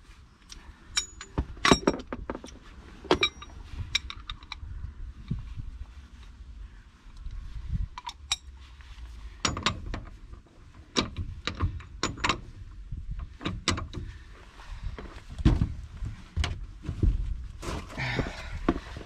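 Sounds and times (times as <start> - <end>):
wheel wrench clicking and clanking: 0.9 - 2.1, 9.4 - 10.2, 10.9 - 12.5.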